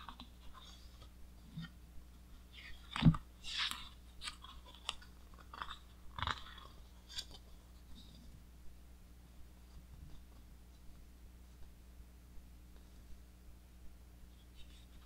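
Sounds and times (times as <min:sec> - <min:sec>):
book pages turning: 0:02.4 - 0:07.9.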